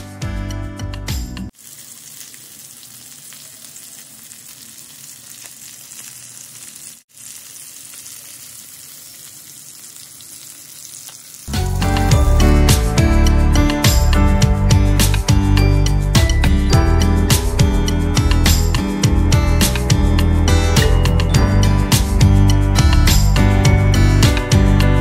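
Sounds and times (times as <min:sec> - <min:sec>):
background music: 0:00.0 - 0:01.5, 0:11.5 - 0:25.0
fish sizzling in oil: 0:01.5 - 0:12.1.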